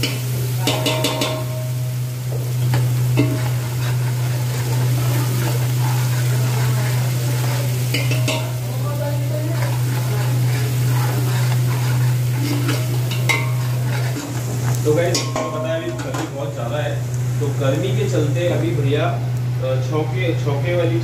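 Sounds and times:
garlic sizzling in oil: 0.0s - 19.8s
ladle scraping a pot: 2.4s - 16.3s.

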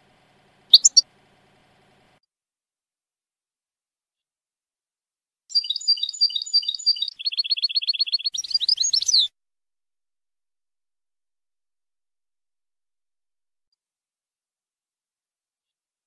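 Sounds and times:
goldfinch singing: 0.7s - 1.0s, 5.5s - 9.3s.

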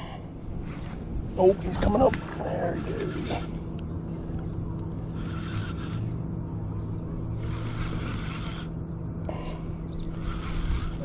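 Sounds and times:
steady low hum: 0.0s - 11.0s
fishing reel whirring: 0.6s - 3.7s, 5.0s - 6.3s, 7.2s - 8.8s, 10.0s - 11.0s.

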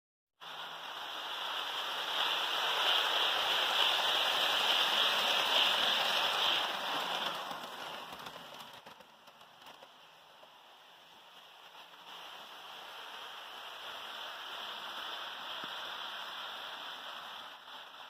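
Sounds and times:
model train rolling past: 0.4s - 18.0s.

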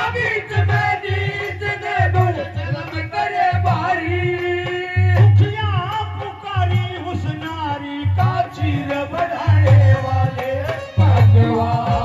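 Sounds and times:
person singing: 8.3s - 12.0s.

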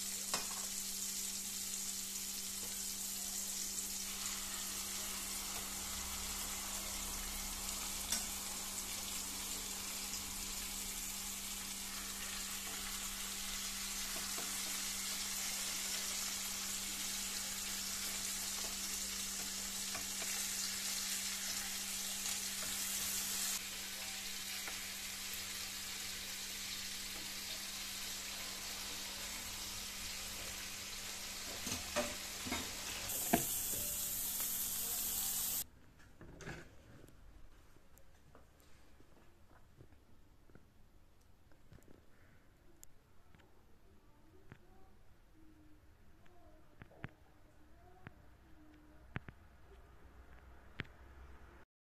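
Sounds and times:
food sizzling in hot oil: 0.0s - 35.6s.

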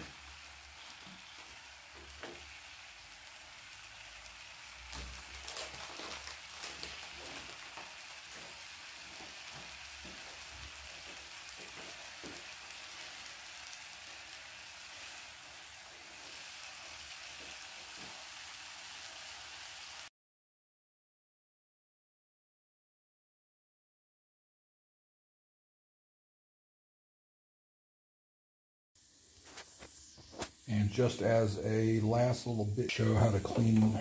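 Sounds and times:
crackles and pops: 0.0s - 18.4s, 29.2s - 30.7s
meat sizzling on a grill pan: 0.0s - 20.1s, 29.0s - 34.0s.

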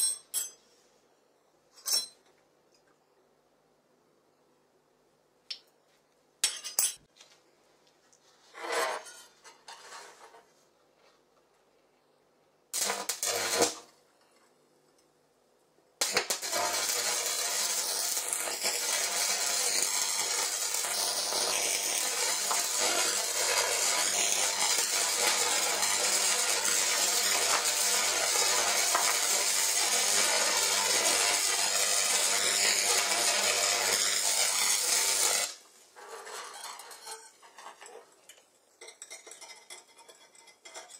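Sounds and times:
welding arc crackle and hiss: 12.7s - 14.0s, 16.0s - 35.7s.

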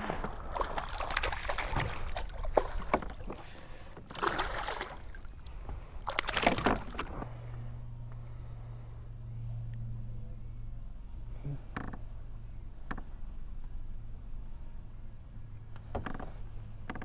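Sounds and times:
steady low hum: 0.0s - 17.0s
fish splashing at the surface: 0.2s - 3.4s, 4.1s - 5.2s, 6.0s - 7.1s.

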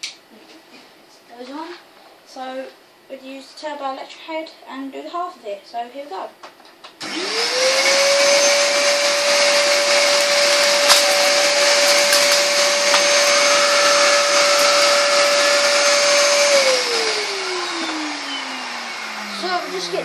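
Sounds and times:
vacuum cleaner motor whine: 7.0s - 20.0s.

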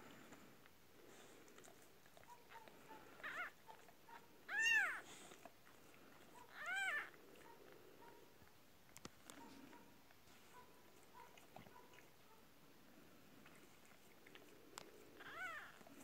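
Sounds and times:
kitten mewing: 4.5s - 5.0s, 6.4s - 7.2s, 15.2s - 15.8s.

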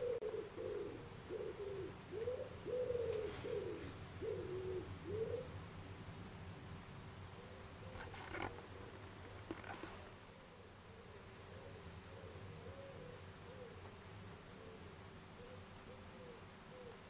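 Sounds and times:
dove cooing: 0.0s - 5.6s, 7.4s - 17.0s
brief rustle: 7.9s - 10.2s.

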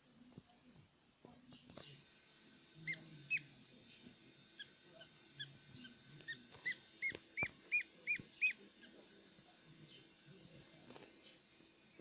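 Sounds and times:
duckling peeping: 2.8s - 3.5s, 4.6s - 9.0s.

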